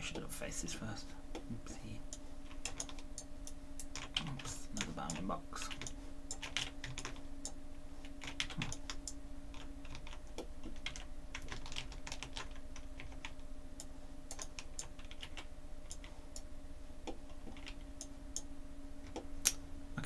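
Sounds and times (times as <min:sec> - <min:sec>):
low hum: 0:00.0 - 0:20.0
keyboard and mouse clicking: 0:02.1 - 0:07.6, 0:14.3 - 0:16.5.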